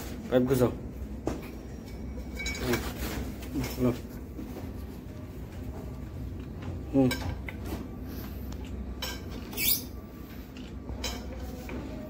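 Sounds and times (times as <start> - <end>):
metal squeak: 9.5 - 10.0.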